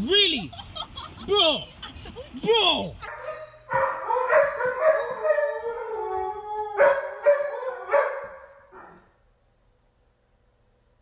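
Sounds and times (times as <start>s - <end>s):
dog howling: 3.2s - 9.2s.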